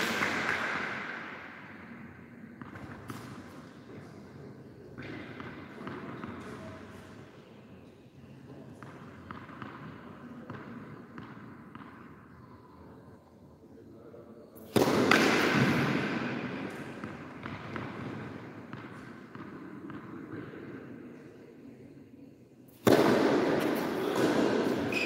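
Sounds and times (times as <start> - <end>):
tennis ball bouncing: 14.7 - 20.6, 22.8 - 25.0.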